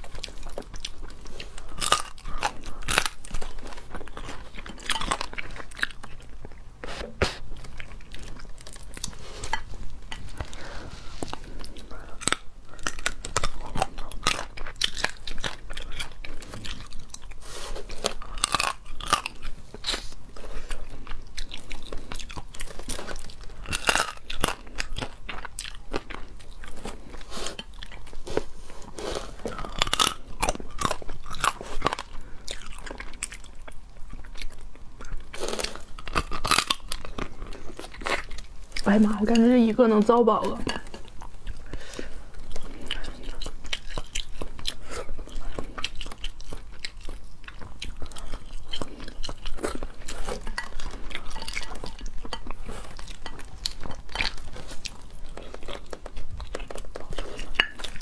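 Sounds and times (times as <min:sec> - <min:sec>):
person chewing: 0:00.0 - 0:58.0
shell cracking and crunching: 0:18.0 - 0:20.0, 0:35.3 - 0:38.6.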